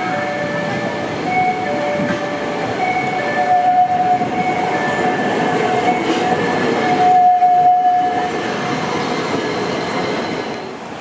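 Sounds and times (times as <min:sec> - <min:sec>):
tram wheels squealing: 0:00.0 - 0:10.8
tram rolling rumble: 0:00.0 - 0:11.0.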